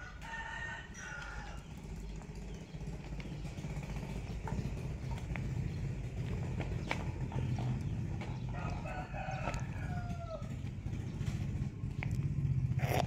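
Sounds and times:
rooster crowing: 0:00.0 - 0:01.8, 0:08.4 - 0:10.8.

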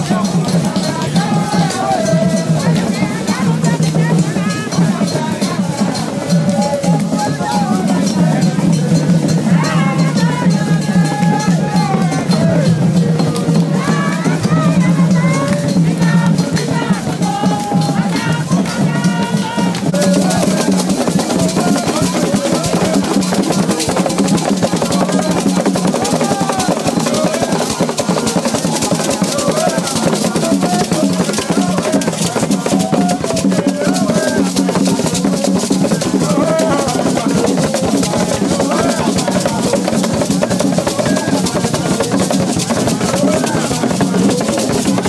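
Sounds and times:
fast drumming: 0:00.0 - 0:45.0
voices singing: 0:00.0 - 0:45.0.

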